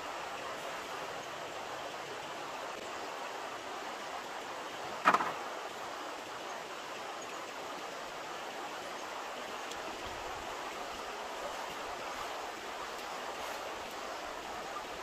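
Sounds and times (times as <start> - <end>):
stream running over rocks: 0.0 - 15.0
sharp knock with rattle: 5.0 - 5.5.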